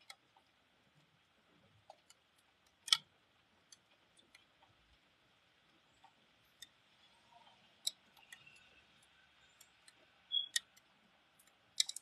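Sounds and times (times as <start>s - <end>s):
faint ticks: 6.0s - 12.0s.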